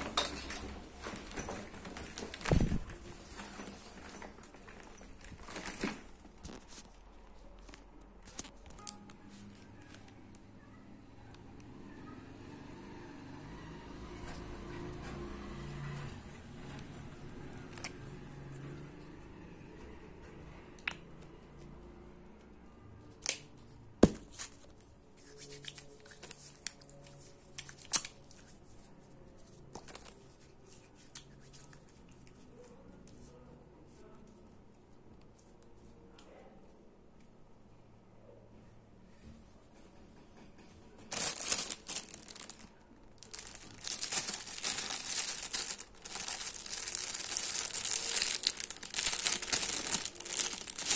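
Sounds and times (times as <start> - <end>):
nylon backpack rustling: 41.1 - 42.6, 43.2 - 50.9.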